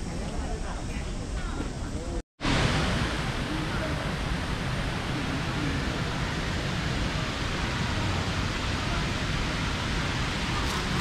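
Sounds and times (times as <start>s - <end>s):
waterfall rushing water: 2.4s - 11.0s.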